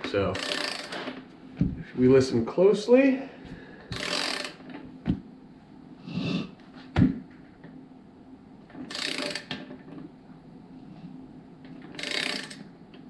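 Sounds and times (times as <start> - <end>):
torque wrench clicking: 0.4 - 1.1, 3.9 - 4.7, 8.8 - 9.6, 11.8 - 12.7.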